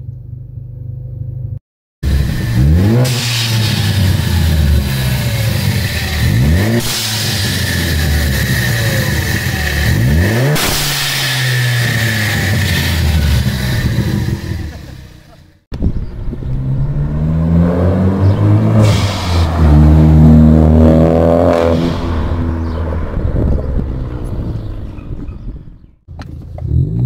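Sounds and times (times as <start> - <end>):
car engine revving: 2.0 - 27.0
blow-off valve hiss: 2.1 - 14.7, 18.8 - 19.8.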